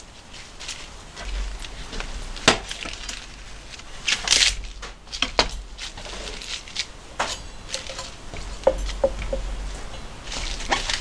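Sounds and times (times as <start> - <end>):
lettuce tearing and rustling: 0.0 - 11.0.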